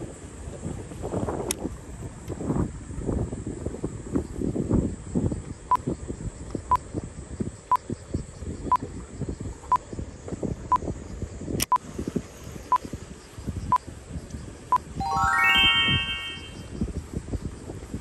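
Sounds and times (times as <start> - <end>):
rising run of tones: 15.0 - 16.7
short high electronic beeps: 15.0 - 16.7.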